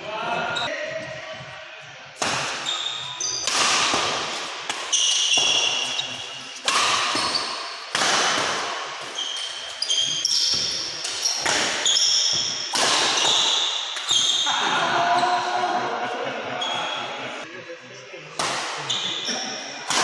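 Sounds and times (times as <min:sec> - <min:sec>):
rackets striking shuttlecock: 0:02.2 - 0:09.7
sneakers squeaking on court floor: 0:02.4 - 0:14.5.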